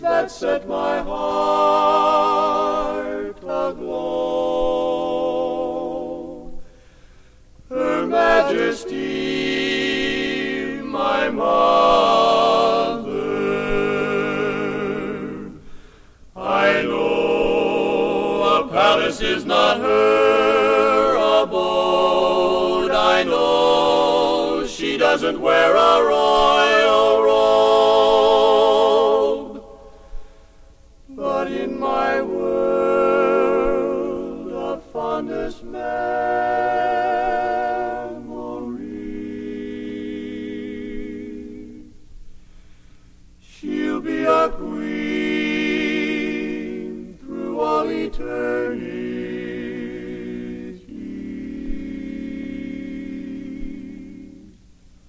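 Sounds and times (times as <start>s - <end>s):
barbershop quartet singing: 0.0s - 30.4s, 31.1s - 42.0s, 43.4s - 54.6s.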